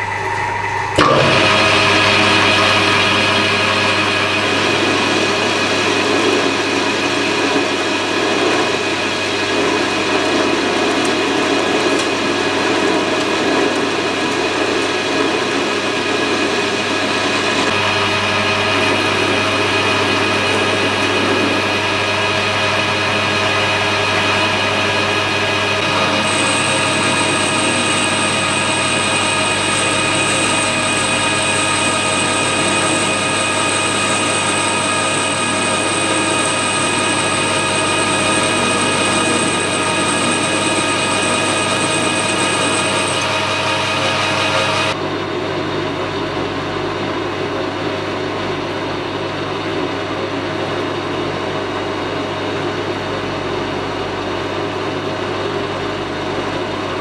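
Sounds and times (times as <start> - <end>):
high whine: 0.0 - 9.6, 17.2 - 45.1
lathe cutting steel: 0.0 - 45.0
metal lathe motor whine: 0.0 - 45.0.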